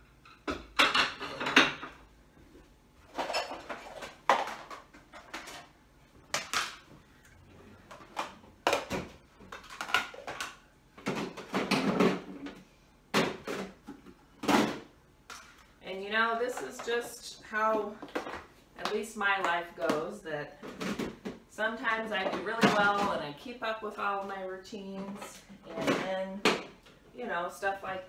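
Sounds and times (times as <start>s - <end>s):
dishes and containers clattering: 0.2s - 2.1s, 3.1s - 5.8s, 7.8s - 12.6s.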